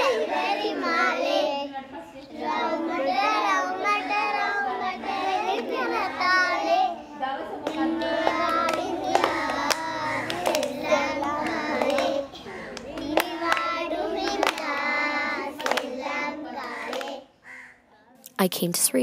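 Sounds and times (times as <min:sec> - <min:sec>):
girls singing in unison: 0:00.0 - 0:17.3
hand claps: 0:07.6 - 0:14.9, 0:15.6 - 0:16.0, 0:16.6 - 0:17.2.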